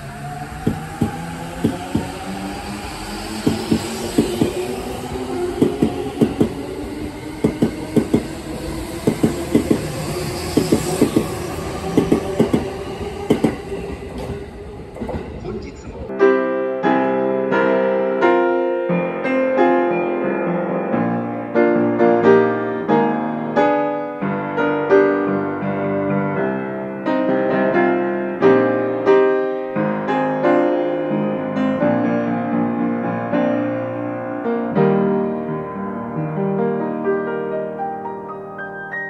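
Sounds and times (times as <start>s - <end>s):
gentle piano melody: 16.1s - 39.0s.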